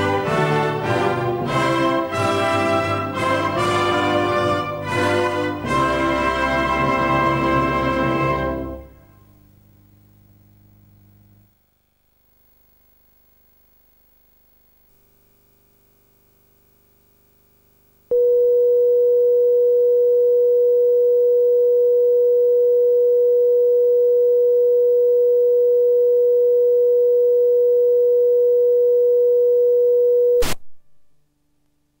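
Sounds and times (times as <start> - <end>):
steady pure test tone: 18.1 - 30.4.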